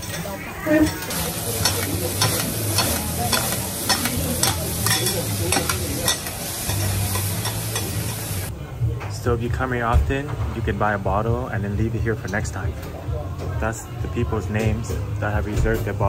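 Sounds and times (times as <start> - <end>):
metal spatulas scraping: 0.0 - 8.2
food sizzling on griddle: 0.7 - 8.5
metal tapping on hot plate: 1.0 - 8.2.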